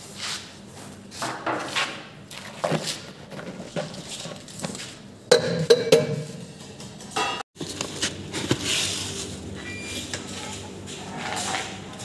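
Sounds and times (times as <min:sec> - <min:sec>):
hand scraping steel bowl: 0:10.2 - 0:12.0.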